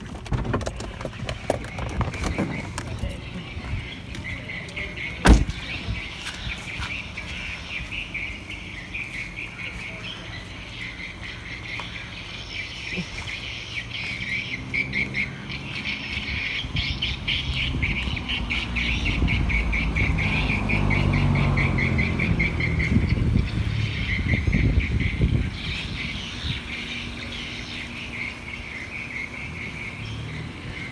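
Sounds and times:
car engine rumbling: 0.0s - 30.9s
car door shutting: 5.2s - 5.7s.

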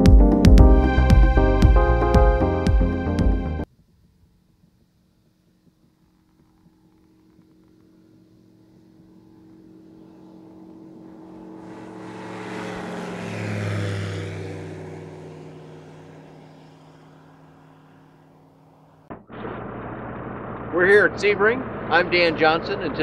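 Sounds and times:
light aircraft passing low: 4.7s - 23.0s.

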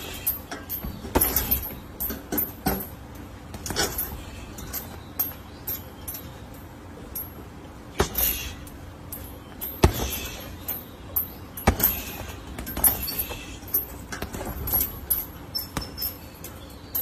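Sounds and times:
punches hitting heavy bag: 0.0s - 1.8s, 8.0s - 8.5s, 9.6s - 10.6s, 11.6s - 16.0s
chain clinking: 0.0s - 17.0s.

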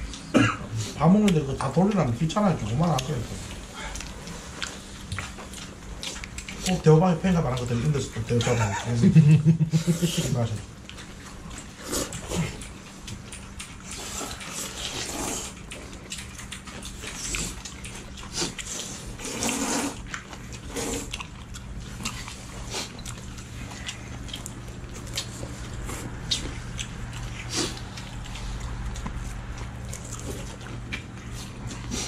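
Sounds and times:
people slurping noodles: 11.8s - 12.6s, 13.8s - 15.6s, 18.3s - 21.1s.

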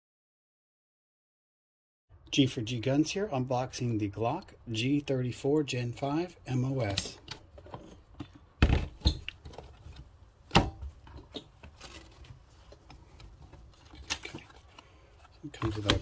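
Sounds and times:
papers and plastic bags rustling: 11.4s - 16.0s.

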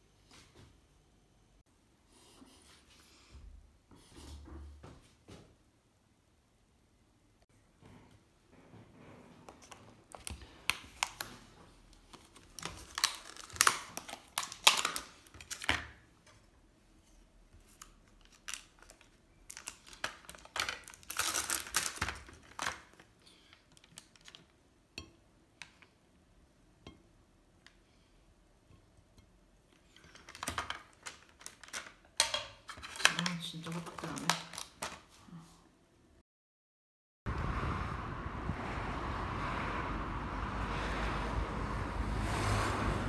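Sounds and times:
plastic tray crinkling: 9.6s - 16.0s, 17.6s - 24.6s, 29.9s - 35.2s.

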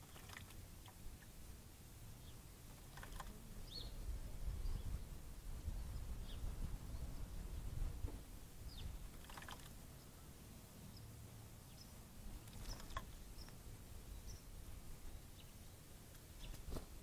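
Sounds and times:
small water splashes: 0.0s - 1.3s, 2.8s - 3.3s, 9.1s - 9.8s, 12.4s - 13.1s.

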